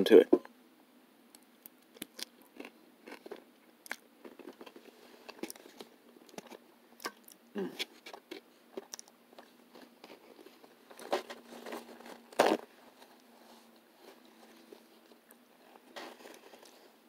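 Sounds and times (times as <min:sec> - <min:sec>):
quiet chewing: 0:01.3 - 0:17.0.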